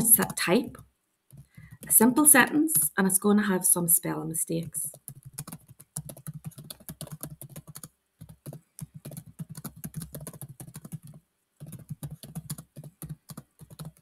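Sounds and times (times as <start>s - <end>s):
typing on computer keyboard: 0.2s - 1.9s, 4.9s - 14.0s.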